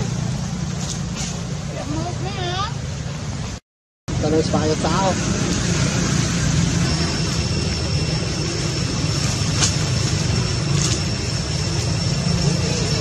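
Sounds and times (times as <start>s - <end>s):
steady low rumble: 0.0s - 13.0s
thin high whine: 4.1s - 13.0s.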